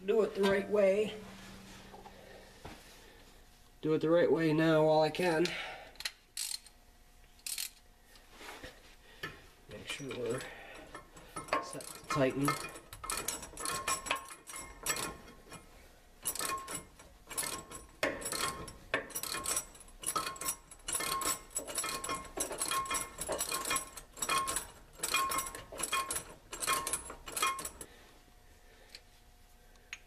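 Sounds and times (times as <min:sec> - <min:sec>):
socket ratchet clicking: 0:06.0 - 0:06.8, 0:07.4 - 0:07.8.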